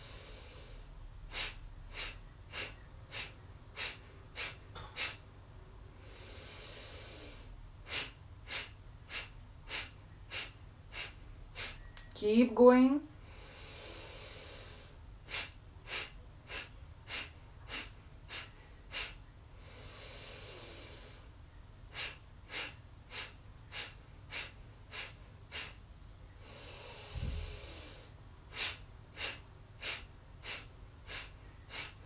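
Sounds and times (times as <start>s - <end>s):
woman exhaling sharply through nose: 0.0s - 5.2s, 6.0s - 11.9s, 21.9s - 25.8s, 26.4s - 32.0s
woman inhaling: 0.0s - 5.2s, 6.0s - 12.0s, 13.2s - 32.0s.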